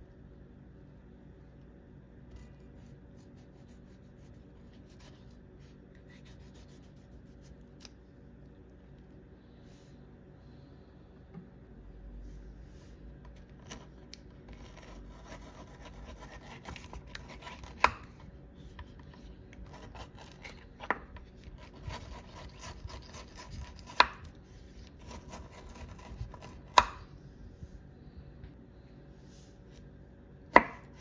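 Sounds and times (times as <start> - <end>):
knife scraping aloe leaf: 2.2 - 5.4, 6.0 - 8.0, 13.5 - 18.2, 18.8 - 26.9.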